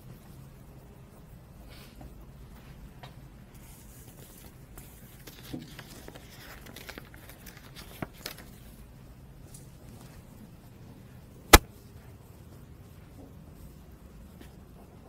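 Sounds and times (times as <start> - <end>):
low room hum: 0.0 - 15.0
paper rustling: 3.8 - 8.7.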